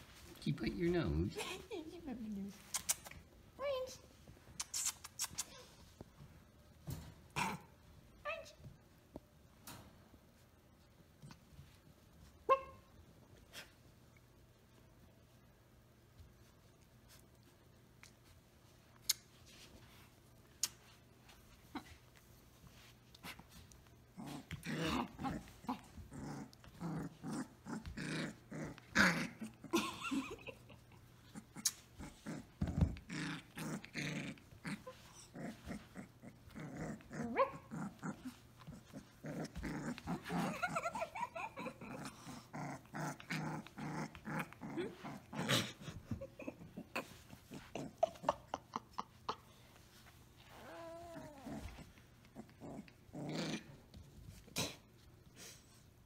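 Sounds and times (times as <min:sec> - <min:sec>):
puppy growling and yapping: 0:07.3 - 0:07.9, 0:22.8 - 0:54.8.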